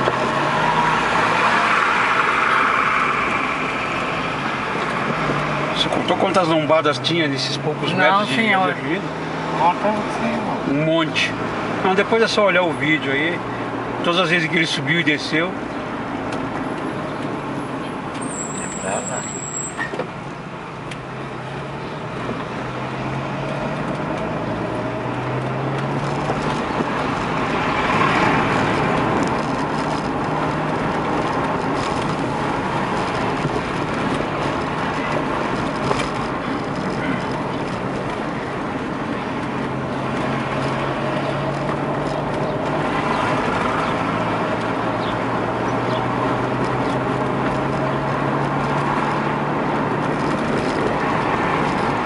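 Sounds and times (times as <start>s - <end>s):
tyre road noise: 0.0s - 52.0s
car engine from inside cabin: 20.0s - 52.0s.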